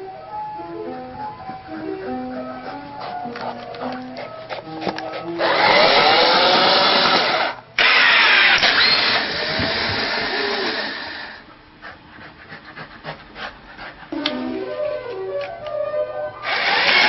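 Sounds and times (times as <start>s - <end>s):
machine whirring: 5.4s - 11.4s, 16.4s - 17.0s.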